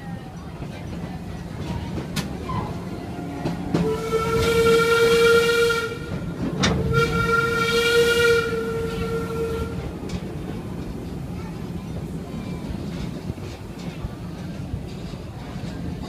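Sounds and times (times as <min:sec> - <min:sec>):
train cars rumbling on rails: 0:00.0 - 0:16.0
steam locomotive whistle blasts: 0:03.8 - 0:09.9.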